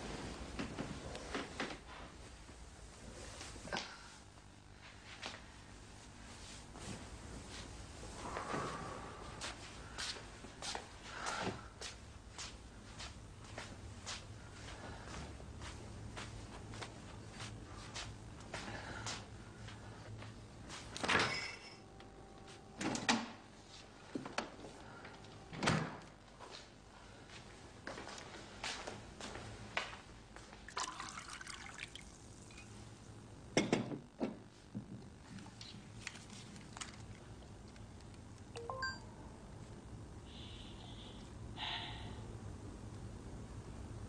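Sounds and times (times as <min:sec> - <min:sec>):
rising electronic beep: 0:38.6 - 0:39.1.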